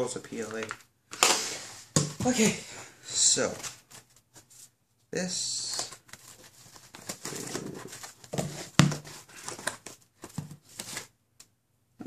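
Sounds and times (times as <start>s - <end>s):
packaging rustling and crinkling: 5.8s - 11.1s.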